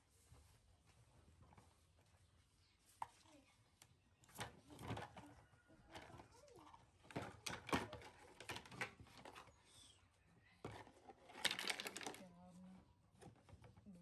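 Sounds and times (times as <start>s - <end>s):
plastic toy truck clicks and knocks: 5.9s - 9.5s, 10.7s - 12.3s.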